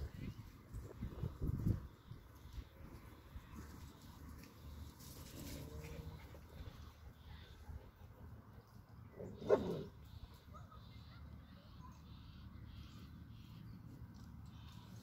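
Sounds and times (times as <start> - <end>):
faint background noise: 0.0 - 15.0
dog barking: 9.2 - 9.9.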